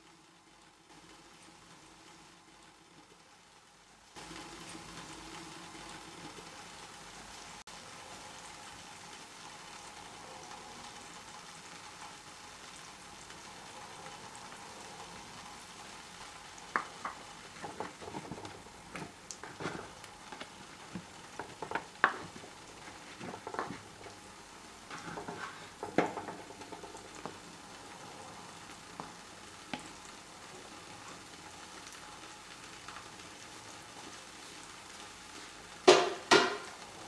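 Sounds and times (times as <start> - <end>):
faint steady hiss: 0.0 - 37.0
spoon knocking bones and pot: 16.8 - 19.9, 20.9 - 22.4, 35.9 - 36.7.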